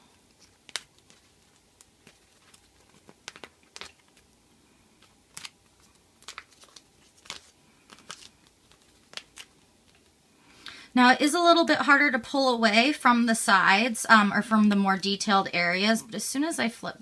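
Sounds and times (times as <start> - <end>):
sticker sheet crinkling: 0.3 - 10.2.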